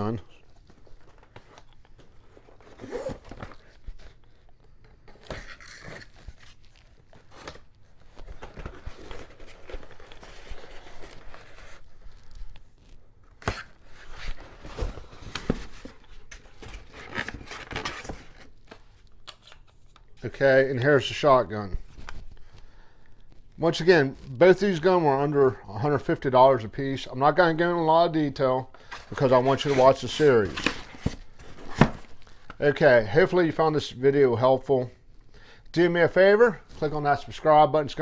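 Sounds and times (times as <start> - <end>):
cardboard rustling and scraping: 0.1 - 18.9, 28.9 - 32.6
tape tearing: 1.0 - 4.2, 5.1 - 11.8.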